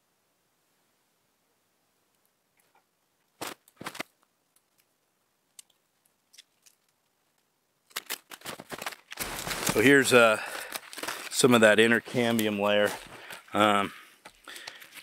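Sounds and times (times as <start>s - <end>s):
bark cracking and tearing: 5.5s - 11.4s.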